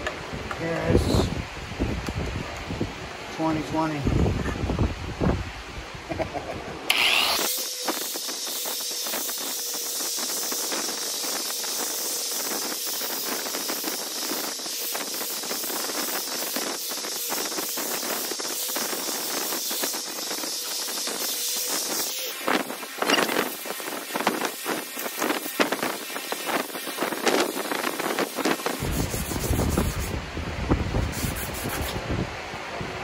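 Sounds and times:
orbital sander whirring: 0:06.6 - 0:30.2.

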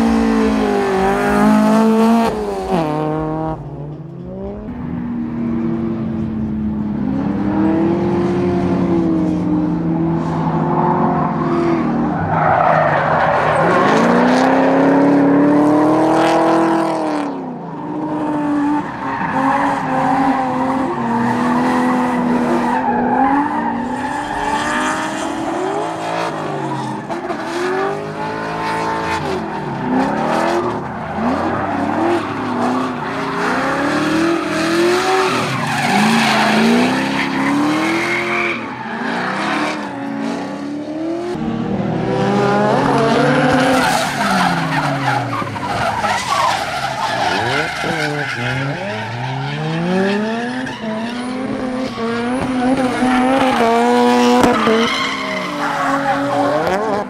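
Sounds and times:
car engines revving: 0:00.0 - 0:57.0
tyre squeal: 0:43.7 - 0:56.9.

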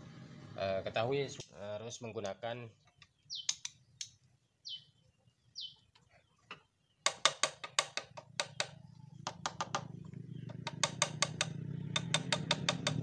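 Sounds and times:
bird whistles: 0:03.3 - 0:03.6, 0:04.6 - 0:04.9, 0:05.6 - 0:05.8.

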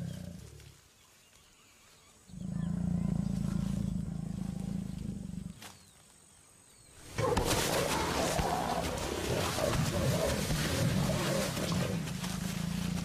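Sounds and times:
jaguar growling: 0:02.3 - 0:05.6, 0:07.0 - 0:13.0.

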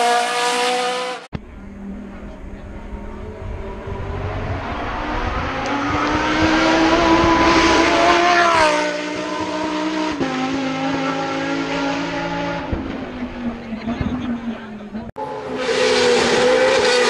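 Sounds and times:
race car engine passing at high revs: 0:00.0 - 0:17.0.

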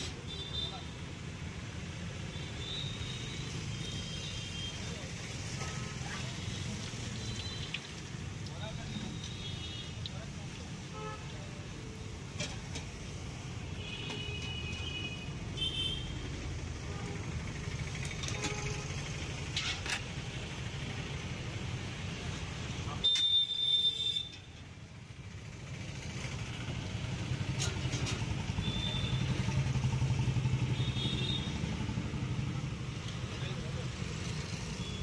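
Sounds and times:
vehicle engines running: 0:25.0 - 0:35.0.

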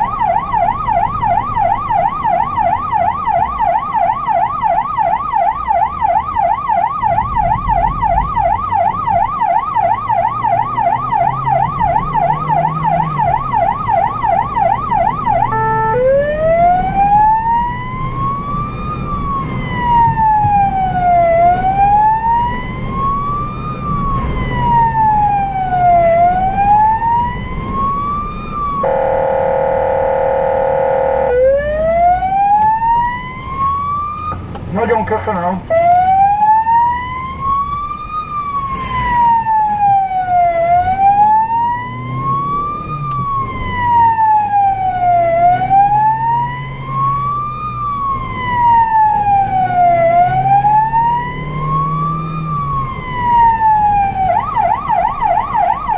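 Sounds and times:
emergency siren yelp and wail: 0:00.0 - 0:55.9
engine and road hum: 0:00.0 - 0:55.9
steady horn tone: 0:28.8 - 0:31.6.

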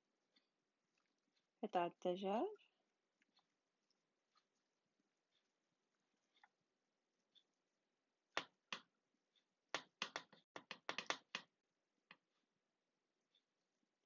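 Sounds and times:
vegetables clicking in glass dish: 0:09.8 - 0:11.5.

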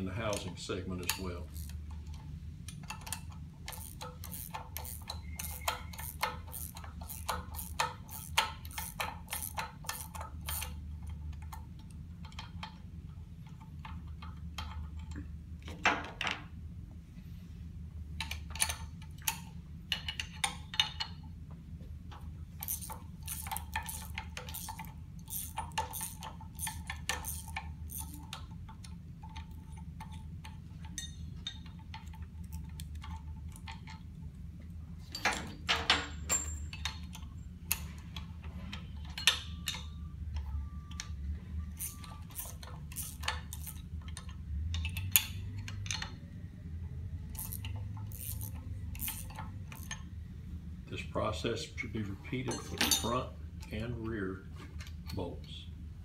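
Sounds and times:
wrenches clinking on bolts: 0:00.0 - 0:12.8, 0:22.1 - 0:34.1, 0:35.1 - 0:38.0, 0:41.8 - 0:46.2, 0:47.3 - 0:50.1, 0:52.2 - 0:54.2
steady low hum: 0:00.0 - 0:56.0.

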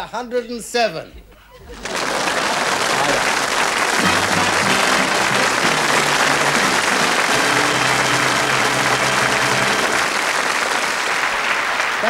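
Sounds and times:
audience applauding: 0:01.7 - 0:12.0
band play-off music: 0:03.8 - 0:10.3.

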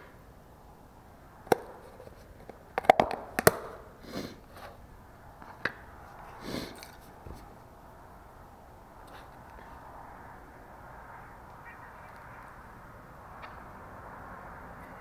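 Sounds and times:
plastic lid snapping and cracking: 0:02.7 - 0:03.8.

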